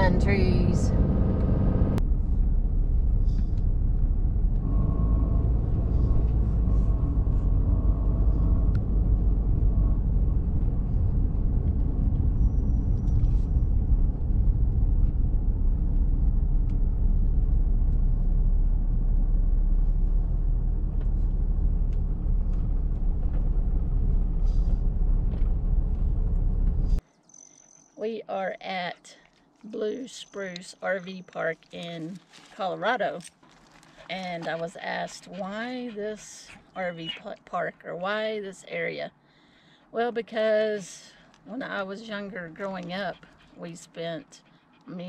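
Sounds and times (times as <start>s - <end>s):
truck engine rumble: 0.0s - 27.0s
tyre noise on road: 0.0s - 27.0s.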